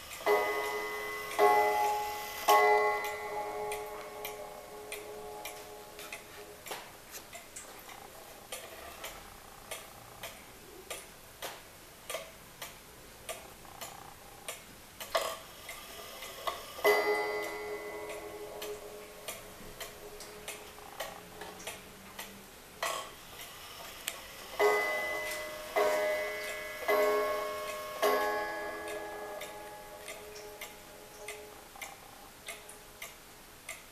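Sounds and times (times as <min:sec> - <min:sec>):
wall clock ticking: 0:00.0 - 0:33.9
clock striking chime: 0:00.2 - 0:06.2, 0:16.8 - 0:20.7, 0:24.6 - 0:31.6.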